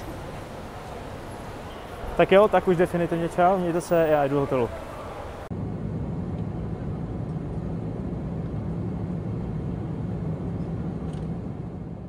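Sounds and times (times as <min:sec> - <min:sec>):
airliner cabin drone: 0:05.0 - 0:12.0.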